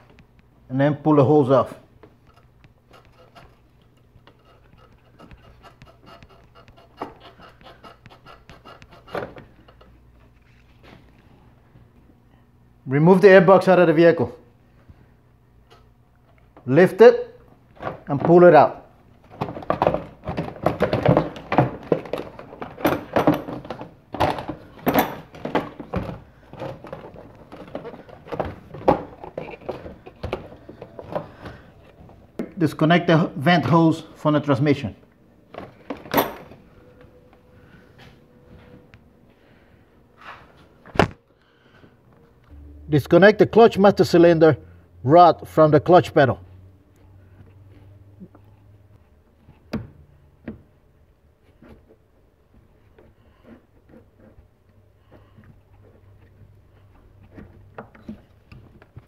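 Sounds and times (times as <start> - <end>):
rubber hose rubbing and creaking: 2.1 - 11.1.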